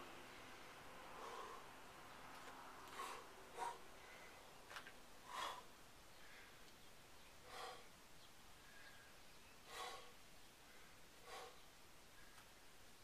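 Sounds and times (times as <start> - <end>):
man breathing hard: 1.0 - 1.8, 2.8 - 4.6, 5.2 - 6.7, 7.4 - 8.0, 8.6 - 12.4.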